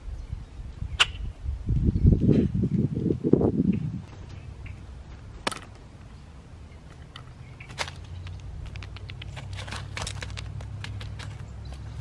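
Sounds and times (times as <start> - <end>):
sharp clicks: 7.0 - 11.4.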